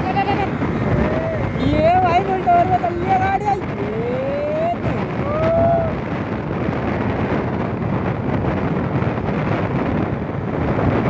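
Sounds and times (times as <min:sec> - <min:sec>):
motorcycle engine: 0:00.0 - 0:04.8
wind buffeting microphone: 0:00.0 - 0:11.0.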